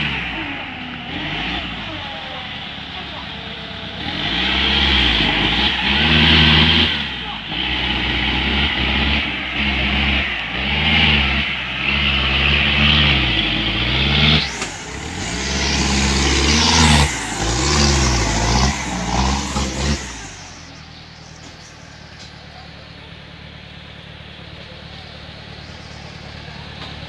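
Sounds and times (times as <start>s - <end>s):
engine revving hard: 0.0s - 20.9s
tyres churning through mud: 0.0s - 27.0s.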